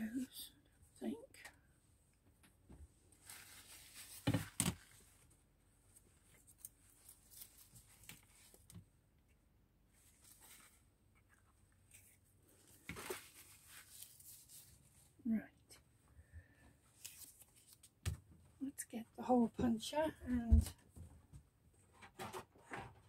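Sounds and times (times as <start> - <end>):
paper rustling: 3.1 - 5.3, 6.0 - 8.8, 10.0 - 14.9, 16.9 - 18.0.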